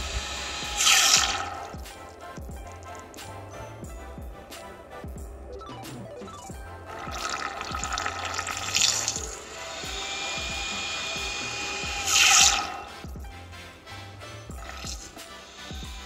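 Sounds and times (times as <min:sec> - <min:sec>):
background music: 0:00.0 - 0:16.0
water splashing: 0:06.9 - 0:13.2.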